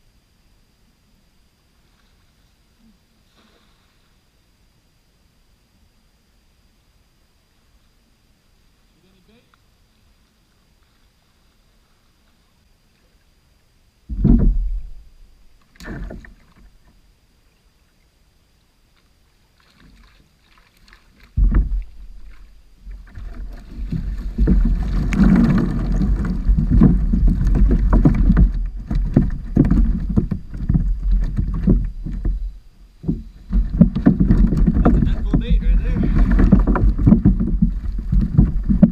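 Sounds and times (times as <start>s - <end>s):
short knocks: 14.1s - 15.2s, 21.3s - 38.9s
fish thumping on kayak hull: 21.2s - 38.9s.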